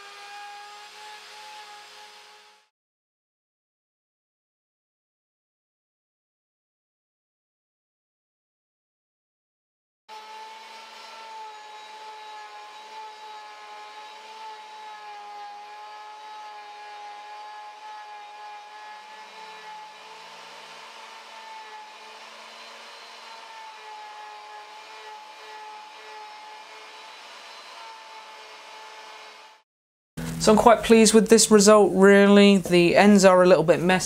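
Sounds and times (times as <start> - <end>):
router motor whining: 0.0 - 2.7, 10.1 - 29.6, 30.2 - 31.2.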